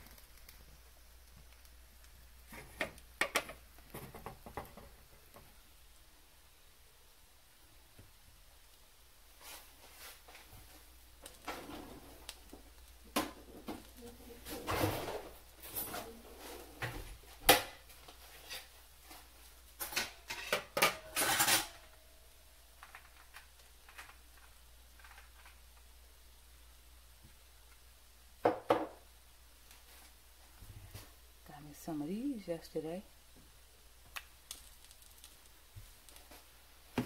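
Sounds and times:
dishes and utensils clinking: 0:19.8 - 0:21.9.

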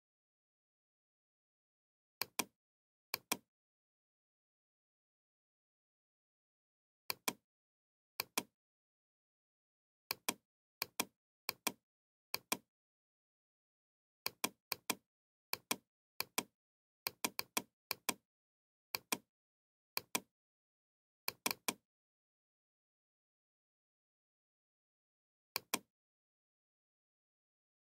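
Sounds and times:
computer mouse button clicking: 0:03.2 - 0:03.4.

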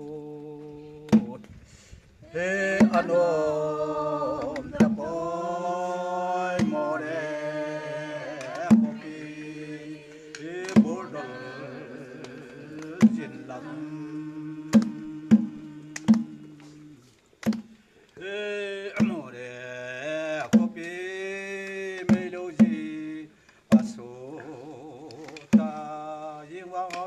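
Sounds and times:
folk singing: 0:00.0 - 0:01.6, 0:02.2 - 0:27.0
hand-struck barrel drum: 0:01.1 - 0:01.4, 0:02.8 - 0:03.1, 0:04.4 - 0:05.1, 0:06.6 - 0:07.0, 0:08.4 - 0:09.5, 0:10.6 - 0:11.1, 0:12.9 - 0:13.3, 0:14.7 - 0:16.6, 0:17.4 - 0:17.7, 0:19.0 - 0:19.3, 0:20.4 - 0:20.9, 0:22.0 - 0:22.9, 0:23.7 - 0:24.0, 0:25.2 - 0:25.9.

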